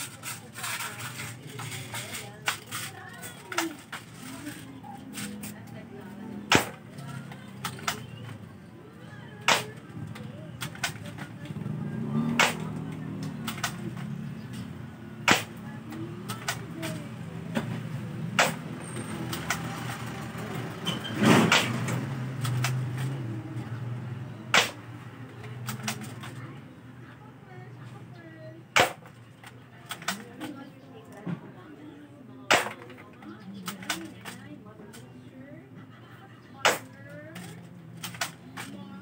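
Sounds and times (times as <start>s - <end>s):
airsoft rifle shot snap: 24.6s - 24.8s, 28.8s - 29.0s.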